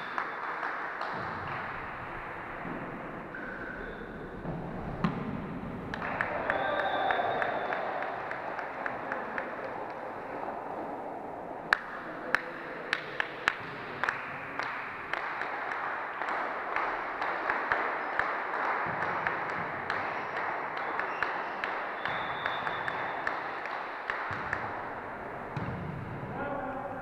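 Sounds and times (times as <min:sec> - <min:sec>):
light taps and claps: 0:00.0 - 0:02.9, 0:05.9 - 0:10.5, 0:11.7 - 0:25.7
volleyball slaps echoing: 0:00.0 - 0:09.7, 0:11.7 - 0:26.4
hall hubbub: 0:00.0 - 0:27.0.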